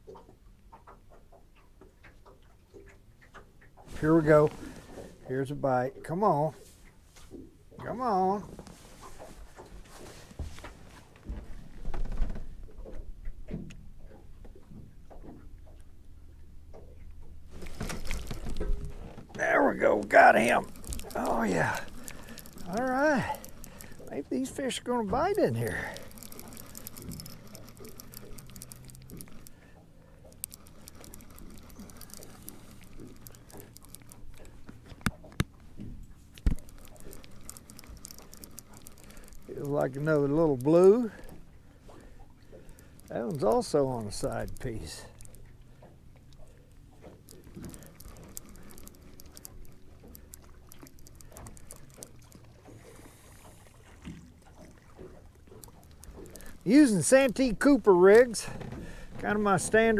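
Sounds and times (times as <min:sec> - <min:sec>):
fishing tackle ticks and rustles: 0:00.0 - 0:59.9
water rumbling against hull: 0:00.0 - 0:59.9
sharp knocks in a boat: 0:06.9 - 0:15.9.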